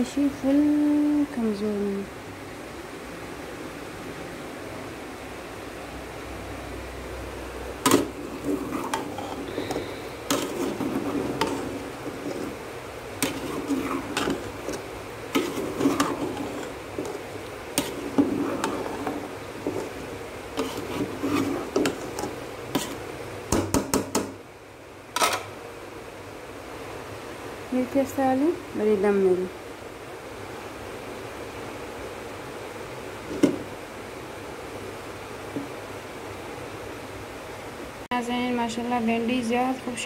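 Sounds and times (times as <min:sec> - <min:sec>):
metal spoon scraping pot: 0:07.9 - 0:12.6, 0:13.2 - 0:23.0.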